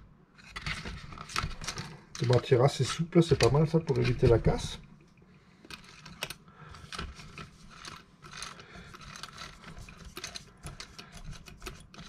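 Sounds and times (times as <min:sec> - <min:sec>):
plastic parts clicking and rattling: 0:00.4 - 0:04.8, 0:05.6 - 0:12.0.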